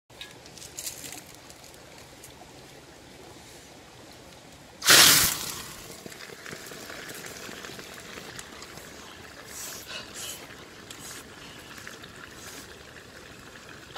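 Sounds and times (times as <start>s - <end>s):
quiet stream: 0.1s - 13.9s
loud rushing sizzle of fire: 4.8s - 8.0s.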